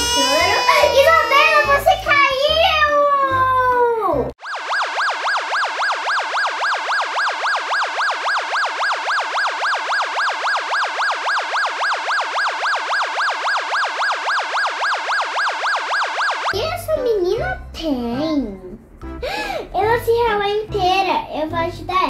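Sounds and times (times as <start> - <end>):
electronic siren yelping: 0.0 - 2.3, 4.4 - 16.6.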